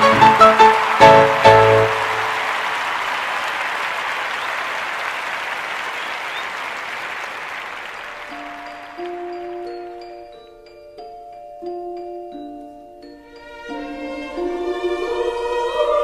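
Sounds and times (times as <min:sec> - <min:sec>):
dance music: 0:00.0 - 0:02.5
audience applauding: 0:00.0 - 0:10.3
soft mallet notes: 0:08.2 - 0:15.5.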